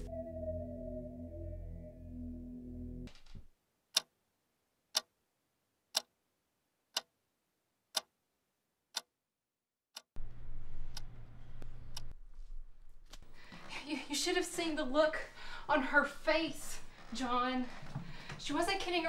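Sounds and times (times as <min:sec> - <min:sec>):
music: 0:00.0 - 0:03.1
clock ticking: 0:03.9 - 0:04.2, 0:04.9 - 0:05.1, 0:05.9 - 0:06.2, 0:06.9 - 0:07.1, 0:07.9 - 0:08.1, 0:08.9 - 0:09.1, 0:09.9 - 0:10.1
low room tone hum: 0:10.2 - 0:17.0.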